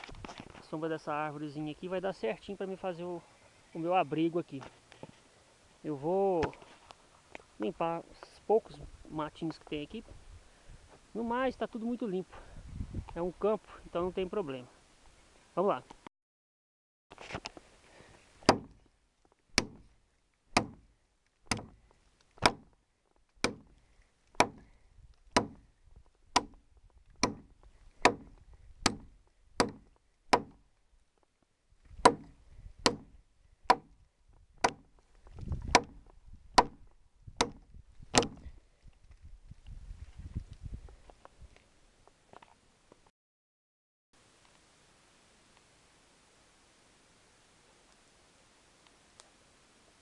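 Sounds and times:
machete chopping dry wood: 18.4 - 18.8, 19.5 - 19.9, 20.5 - 21.8, 22.4 - 22.8, 23.4 - 24.7, 25.3 - 25.7, 26.3 - 26.6, 27.2 - 30.6, 32.0 - 34.0, 34.6 - 38.5.

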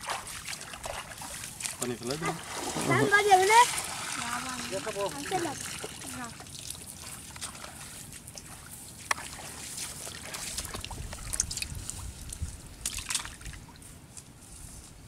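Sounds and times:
fish splashing: 0.0 - 12.2.

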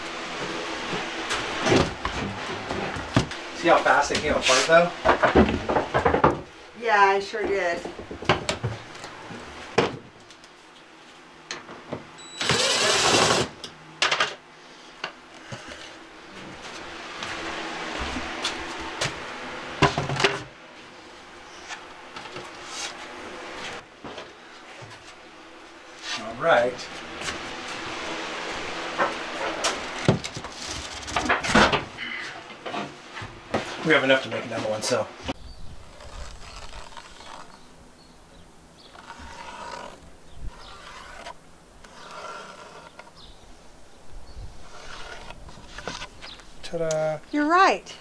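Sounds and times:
wooden panels knocking and scraping: 5.0 - 6.5, 7.4 - 8.8, 29.0 - 31.9
cordless drill running: 12.4 - 13.5.

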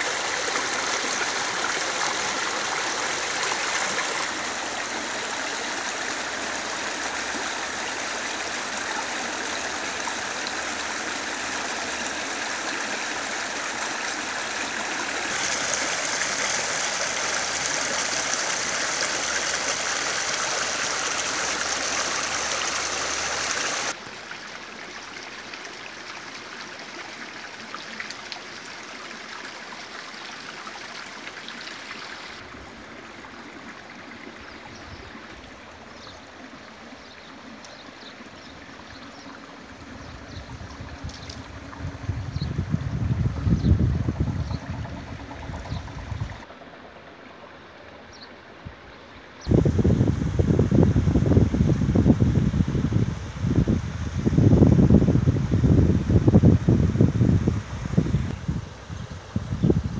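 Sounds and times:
river flowing over stones: 0.0 - 42.0.

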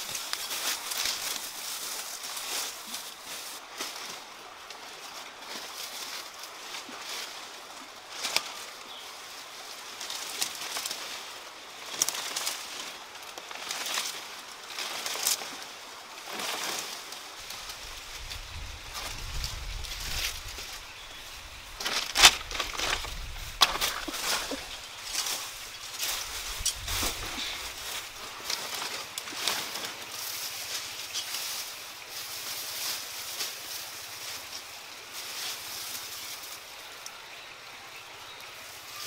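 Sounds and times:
leaves rustling and crackling: 0.0 - 39.0
sharp snaps of leaves: 8.1 - 8.8.

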